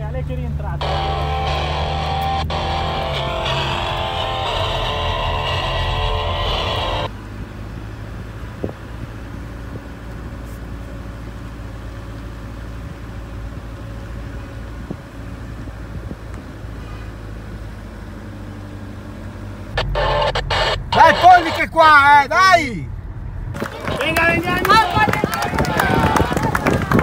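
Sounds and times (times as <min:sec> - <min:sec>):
car driving rumble: 0:00.0 - 0:27.0
electric guitar music: 0:00.8 - 0:07.1.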